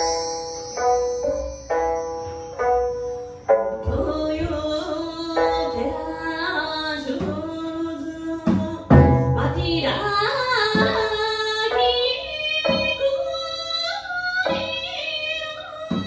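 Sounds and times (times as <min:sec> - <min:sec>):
woman singing: 0:03.8 - 0:16.0
plucked lute notes: 0:08.9 - 0:13.0.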